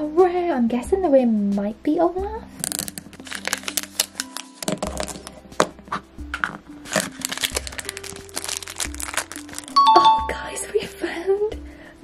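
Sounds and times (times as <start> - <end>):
background music: 0.0 - 12.0
scissors cutting tape: 2.6 - 5.3
wrapper crinkling: 2.6 - 9.8.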